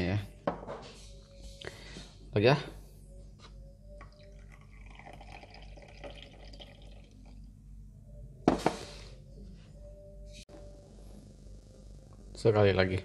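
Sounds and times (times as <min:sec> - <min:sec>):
coffee pouring into glass cup: 0:04.0 - 0:07.5
glass server set down on wooden table: 0:08.5 - 0:08.8.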